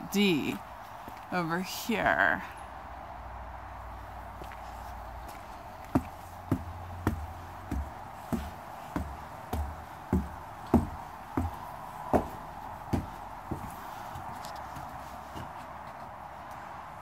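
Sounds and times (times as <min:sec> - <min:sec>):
traffic hum: 0:00.0 - 0:17.0
footsteps on snowy wooden porch: 0:03.9 - 0:17.0.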